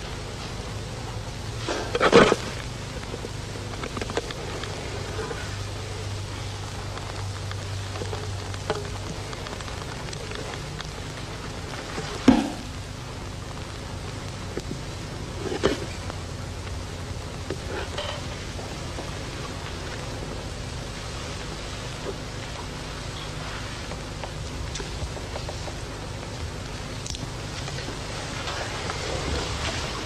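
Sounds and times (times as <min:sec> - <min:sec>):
sharp drum strike: 0:12.3 - 0:12.7.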